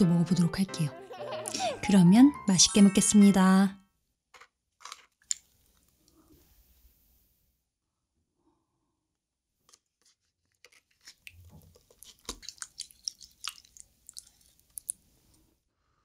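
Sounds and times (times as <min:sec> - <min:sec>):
wet squelches: 0:10.8 - 0:15.4.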